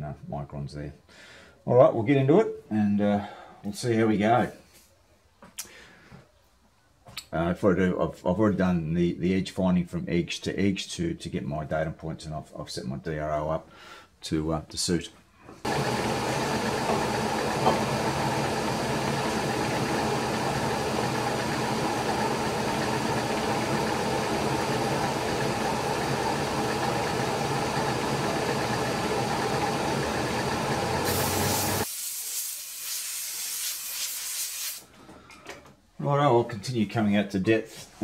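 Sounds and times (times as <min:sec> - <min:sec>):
milling machine cutting metal: 0:15.7 - 0:31.8
compressed air hissing: 0:31.0 - 0:34.9.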